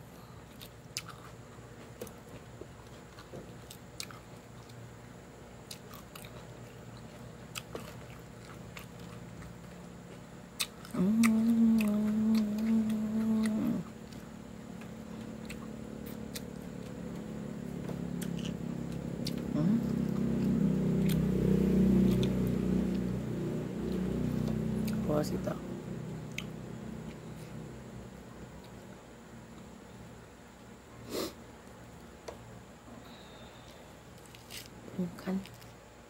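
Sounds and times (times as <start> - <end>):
low engine-like rumble: 0.0 - 36.0
chewing and crunching lettuce: 0.4 - 4.8, 5.6 - 27.6, 33.6 - 35.8.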